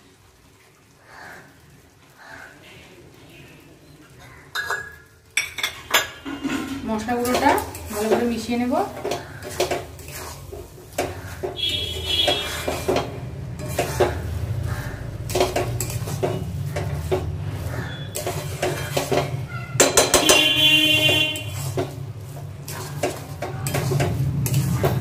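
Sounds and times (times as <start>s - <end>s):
metal spatula scraping pan: 5.5s - 25.0s.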